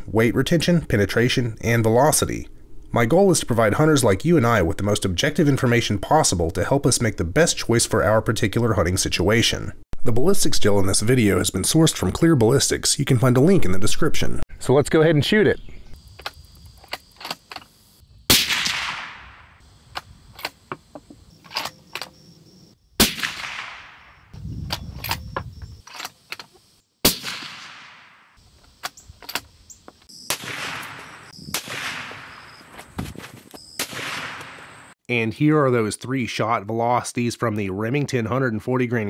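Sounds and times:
suppressed rifle shots: 18.3s - 20.6s, 23.0s - 24.2s, 27.0s - 28.4s, 30.2s - 32.6s, 33.8s - 34.8s.

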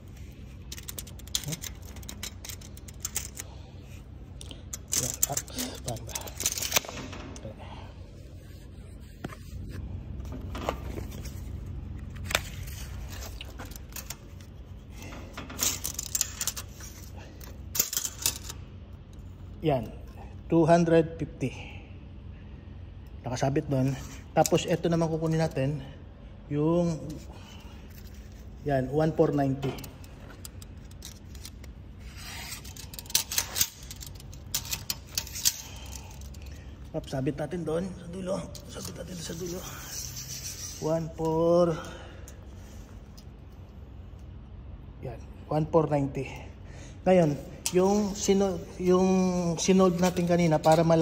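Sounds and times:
steady low hum: 0.0s - 51.0s
tape measure clicking and rattling: 0.6s - 3.6s, 4.7s - 7.1s, 15.5s - 17.1s, 17.7s - 18.6s, 29.0s - 36.6s
tape measure clicks and rattles: 29.6s - 36.4s.

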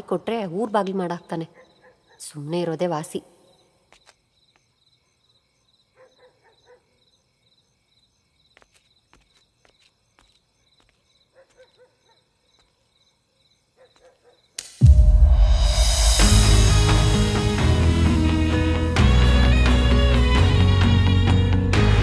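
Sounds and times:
crickets chirping: 0.0s - 14.6s
loud music: 14.8s - 22.0s.

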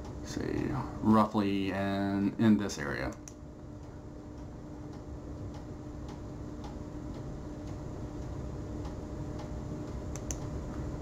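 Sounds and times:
steady low hum: 0.0s - 11.0s
faint ticking: 3.1s - 10.8s.

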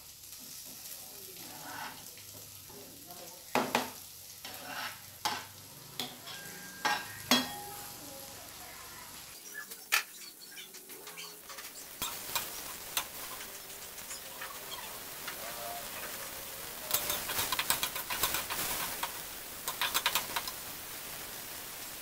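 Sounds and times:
garlic sizzling in oil: 0.0s - 22.0s
spatula tapping and scraping a wok: 3.5s - 7.7s, 10.8s - 14.4s, 16.1s - 20.7s.

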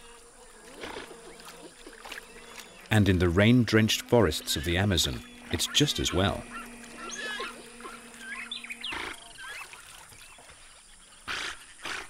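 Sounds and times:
steady high hum: 2.2s - 9.8s
animal chirping calls: 4.4s - 9.8s.

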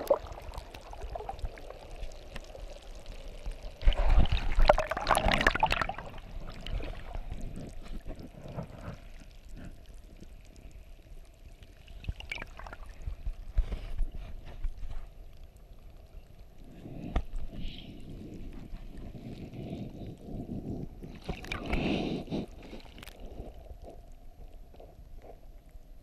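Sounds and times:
water splashing and sloshing: 0.0s - 10.9s, 11.6s - 15.8s, 21.0s - 25.8s.

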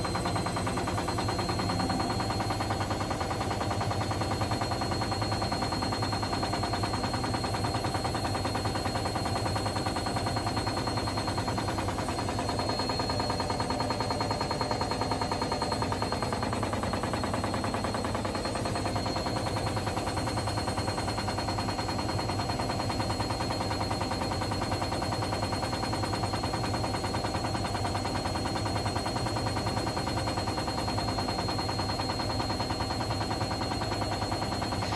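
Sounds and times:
washing machine tub knocking: 0.0s - 5.0s, 8.0s - 21.7s
washing machine drum running: 0.0s - 34.9s
thin high whine: 10.7s - 20.0s.

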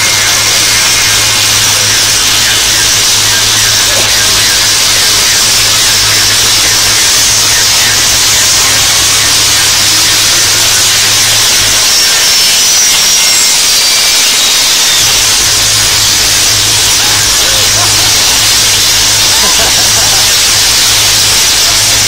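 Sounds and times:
low hum: 0.0s - 22.0s
tesla coil electrical discharge: 0.0s - 22.0s.

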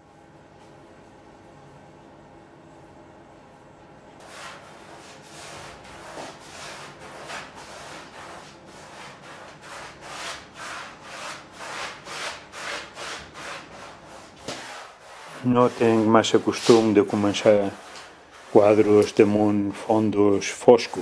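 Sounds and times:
paintbrush swishing paint: 4.2s - 21.0s.

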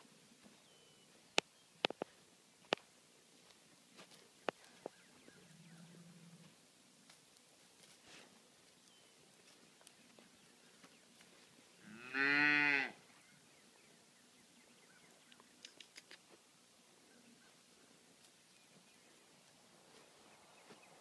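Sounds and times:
calf mooing: 11.8s - 13.0s.

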